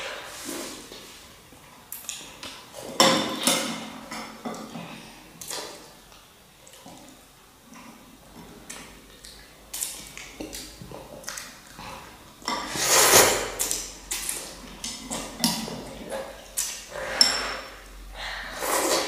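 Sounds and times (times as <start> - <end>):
person slurping noodles: 12.6 - 13.6, 16.9 - 19.0
utensils clinking against bowl: 15.2 - 17.9.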